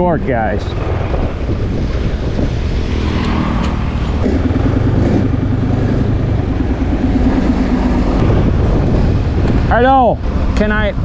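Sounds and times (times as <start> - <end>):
scooter engine running: 0.8 - 8.2.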